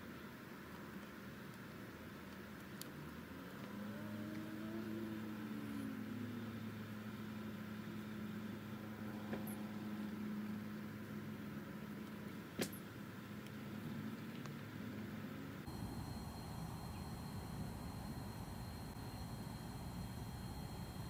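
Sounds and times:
low motor hum: 0:03.0 - 0:12.1, 0:15.6 - 0:21.0.

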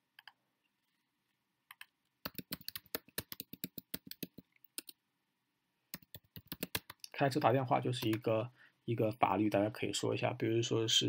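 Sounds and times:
computer keyboard typing: 0:01.7 - 0:05.0, 0:05.9 - 0:07.0, 0:08.0 - 0:08.3.

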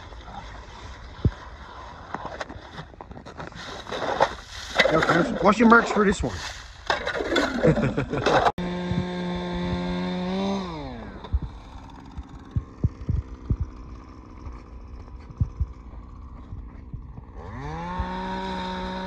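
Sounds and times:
small engine running: 0:08.4 - 0:19.0.

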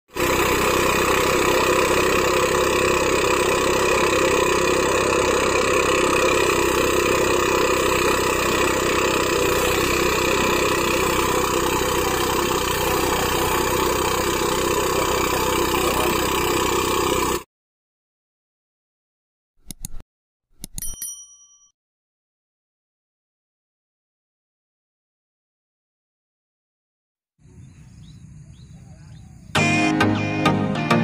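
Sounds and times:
rice thresher running: 0:00.1 - 0:17.5.

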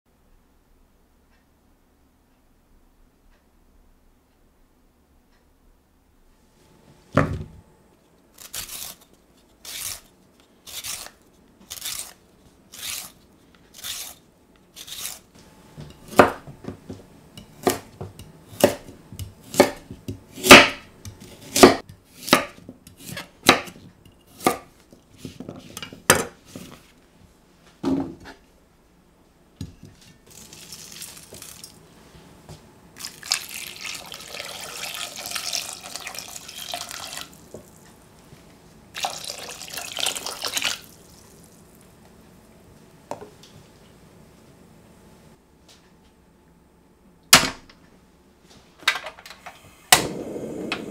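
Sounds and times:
parsnips being peeled: 0:08.3 - 0:15.3, 0:30.2 - 0:31.8
knife chopping on wooden board: 0:15.9 - 0:26.6
water poured into metal saucepan: 0:30.3 - 0:31.7, 0:33.0 - 0:37.4, 0:39.0 - 0:40.9.

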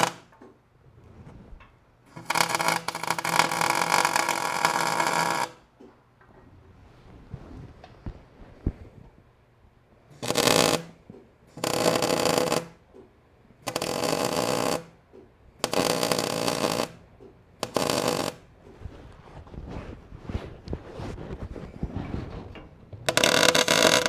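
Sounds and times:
welding arc crackling: 0:02.1 - 0:05.6, 0:10.1 - 0:12.8, 0:13.6 - 0:14.9, 0:15.6 - 0:17.0, 0:17.6 - 0:18.4, 0:23.1 - 0:24.0.

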